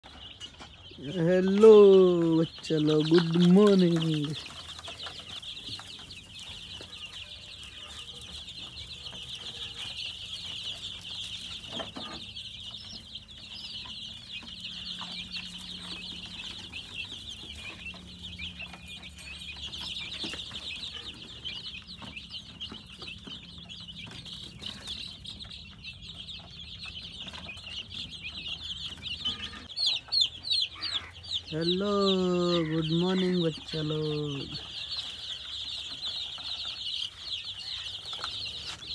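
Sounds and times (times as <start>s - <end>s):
chicks peeping: 0.0s - 38.9s.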